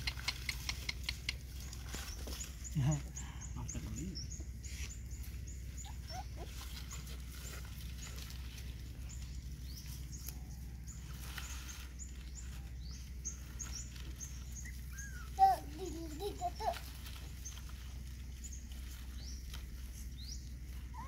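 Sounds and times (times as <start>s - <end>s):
puppies smacking and lapping: 0.0s - 2.4s.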